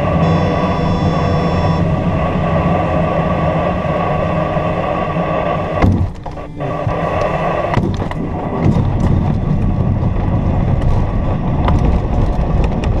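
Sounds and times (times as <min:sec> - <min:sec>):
airplane engine drone: 0:00.0 - 0:13.0
heavy cockpit rumble: 0:00.0 - 0:13.0
knocks and rattles: 0:07.7 - 0:13.0.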